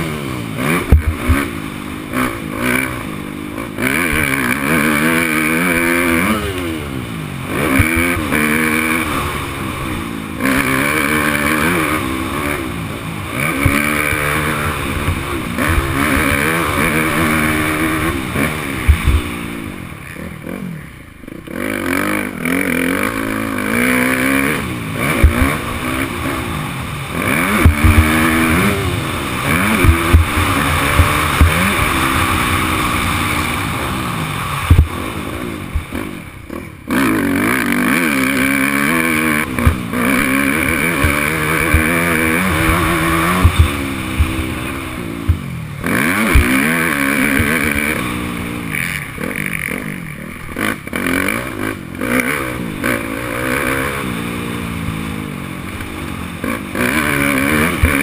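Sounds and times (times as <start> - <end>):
motocross engine revving: 0.0 - 58.0
rush of noise: 0.0 - 58.0
low thumps over bumps: 0.7 - 2.4, 7.5 - 19.4, 24.9 - 36.0, 39.2 - 48.6.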